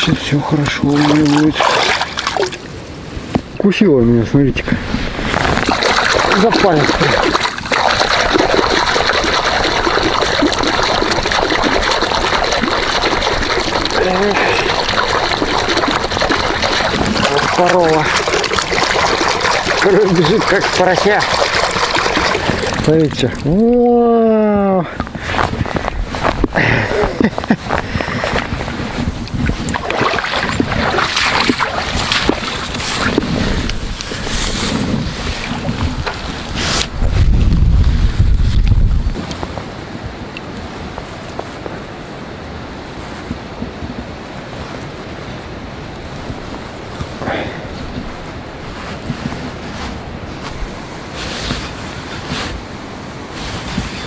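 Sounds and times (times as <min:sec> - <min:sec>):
wind buffeting microphone: 0:00.0 - 0:54.0
hand splashing shallow water: 0:00.9 - 0:02.7, 0:05.4 - 0:23.8, 0:29.6 - 0:34.8
grass stems rustling: 0:04.9 - 0:23.8, 0:28.4 - 0:39.6, 0:47.9 - 0:54.0
footsteps through dry grass: 0:25.3 - 0:26.6, 0:47.8 - 0:52.7.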